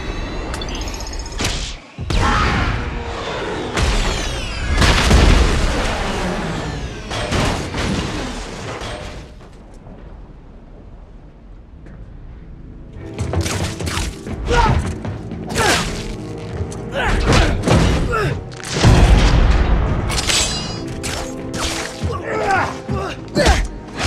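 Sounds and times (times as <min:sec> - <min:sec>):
low rumble: 0:09.4 - 0:13.4.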